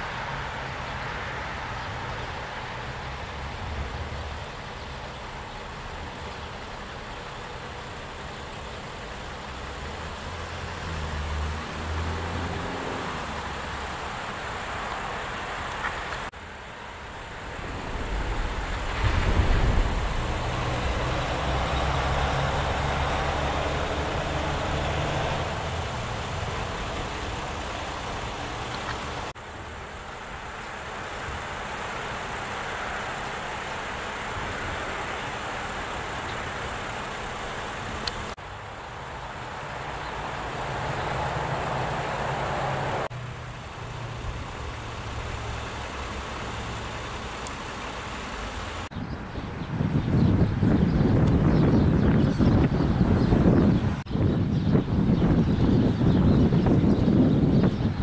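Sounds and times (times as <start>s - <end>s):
road traffic rumble: 0.0s - 58.0s
heavy vehicle passing: 8.9s - 16.3s, 17.0s - 48.9s.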